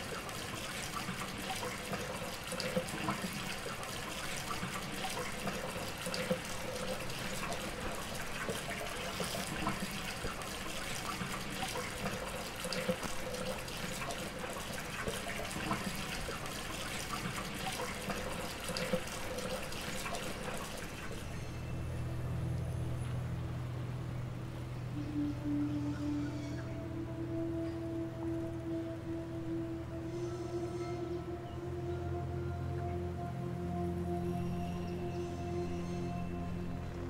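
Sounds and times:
tap water running: 0.0 - 21.5
low steady hum: 0.0 - 37.0.

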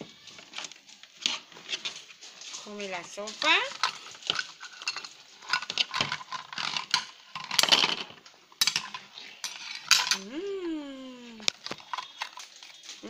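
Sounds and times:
plastic toy food clattering: 0.2 - 10.3, 11.4 - 13.0
person's drawn-out vocal sound: 10.2 - 11.5.

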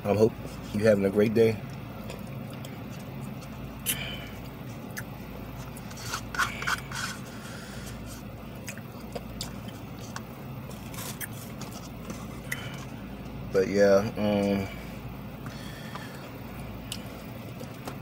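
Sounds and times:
low hum inside car: 0.0 - 18.0
spoon scraping a cup: 5.8 - 7.3.

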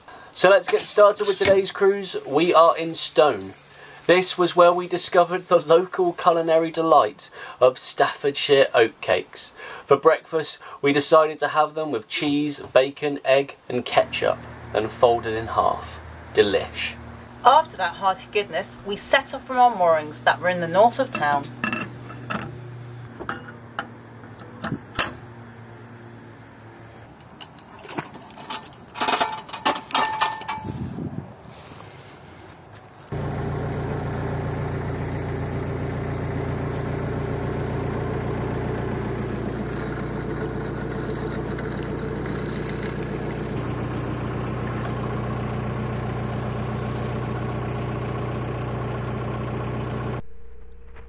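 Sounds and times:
boat diesel engine running: 13.8 - 24.7, 33.1 - 51.0
metal clinks and knocks: 23.2 - 25.3, 27.1 - 30.8.

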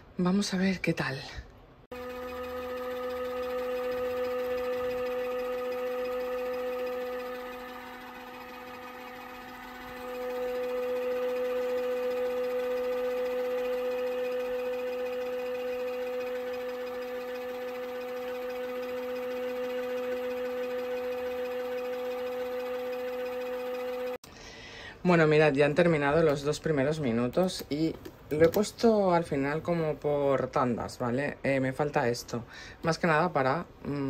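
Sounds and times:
washing machine motor humming: 1.9 - 24.2.

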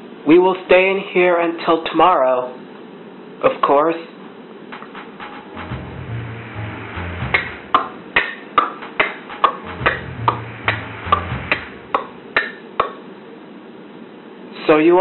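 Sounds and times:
short transition melody: 4.8 - 8.2, 8.8 - 12.3
low bass line: 5.5 - 8.1, 9.4 - 12.3.

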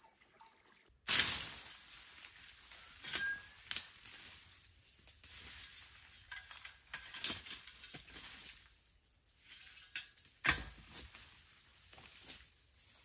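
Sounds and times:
dry twigs snapping: 2.7 - 8.6.

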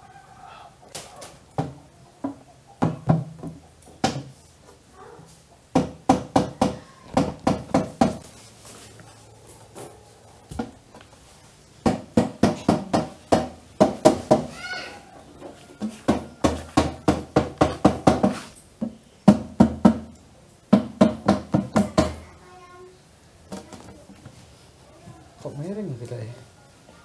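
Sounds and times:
tool knocking on hollow plywood box: 5.7 - 8.2, 11.8 - 14.5, 16.0 - 20.1, 20.7 - 22.2.

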